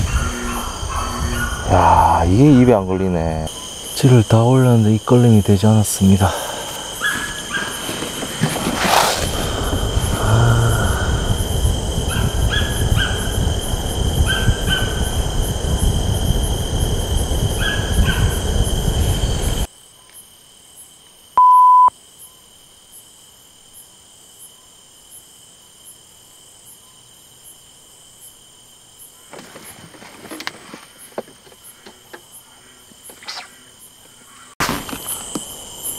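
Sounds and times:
night insects chirring: 0:00.0 - 0:35.9
high electronic beep: 0:21.4 - 0:21.9.

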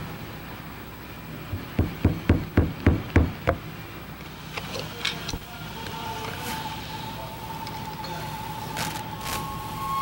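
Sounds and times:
mallet knocking on metal housing: 0:01.5 - 0:03.7.

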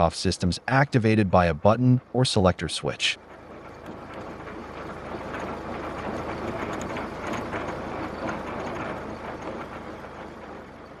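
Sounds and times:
farm machinery clattering: 0:03.1 - 0:11.0.

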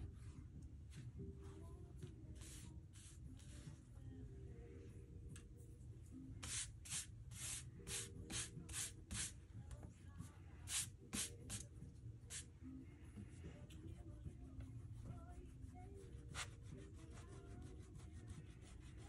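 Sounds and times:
rubbing strokes on paper: 0:02.4 - 0:03.8, 0:14.8 - 0:19.0.

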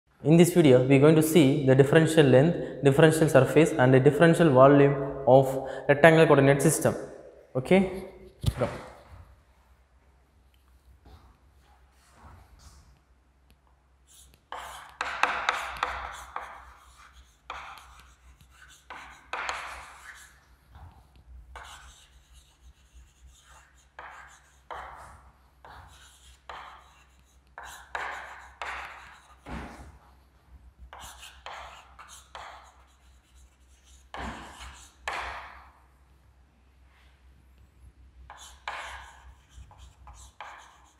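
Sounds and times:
chalk scratching on chalkboard: 0:14.0 - 0:35.6, 0:38.3 - 0:40.9.

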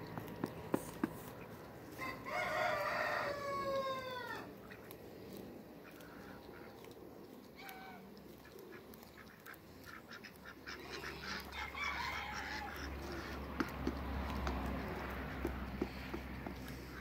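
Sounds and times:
domestic fowl calling: 0:01.9 - 0:05.0, 0:07.6 - 0:13.5.

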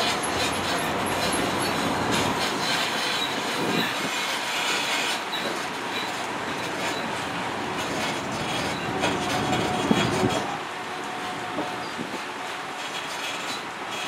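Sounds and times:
tram cars rattling: 0:00.0 - 0:14.0
tram rolling along road: 0:00.0 - 0:14.0.

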